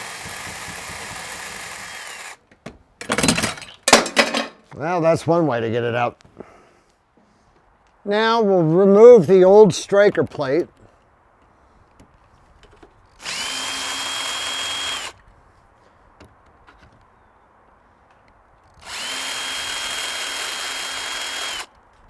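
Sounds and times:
cordless drill whining: 0.0 - 2.4, 13.1 - 15.2, 18.7 - 21.8.

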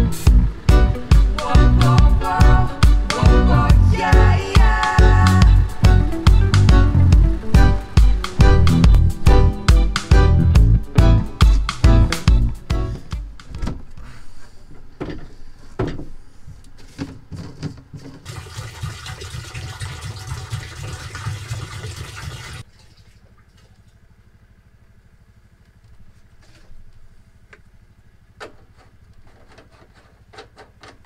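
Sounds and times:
water gushing into plastic tank: 18.2 - 23.7.

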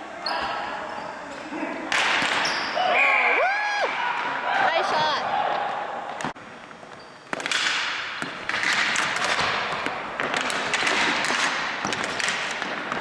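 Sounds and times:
hockey sticks clacking: 1.4 - 2.5, 6.1 - 13.0.

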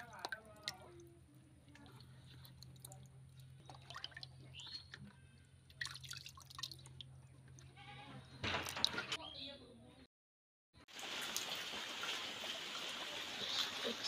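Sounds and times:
water splashes and drips: 0.0 - 7.7, 10.9 - 14.0.

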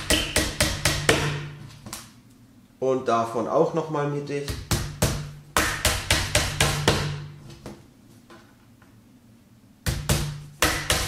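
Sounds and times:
hammer driving nails into wood panel: 0.0 - 1.5.

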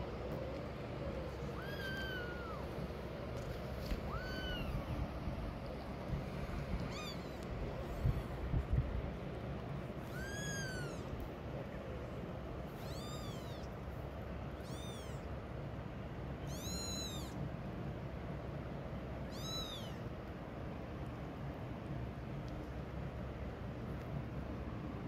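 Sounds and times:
kitten mewing: 1.4 - 2.8, 3.8 - 5.0, 6.8 - 8.3, 10.0 - 11.2, 12.7 - 13.8, 14.5 - 15.3, 16.4 - 17.4, 19.2 - 20.1.

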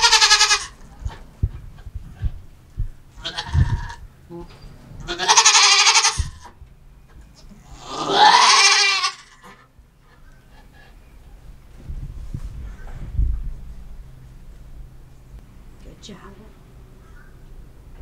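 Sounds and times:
goat bleating loudly: 0.0 - 0.8, 3.2 - 4.0, 5.1 - 6.4, 7.8 - 9.5.

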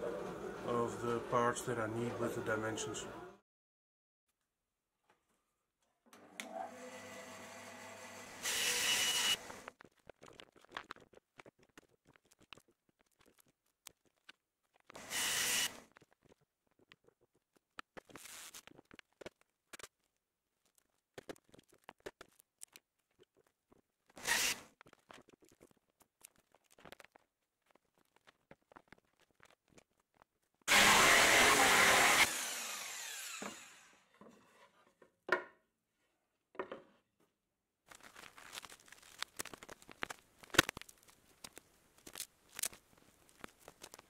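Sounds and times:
band saw cutting wood: 6.4 - 9.5, 15.0 - 15.7, 30.7 - 34.1
wood knocking and scraping: 33.4 - 35.6, 36.5 - 37.0.

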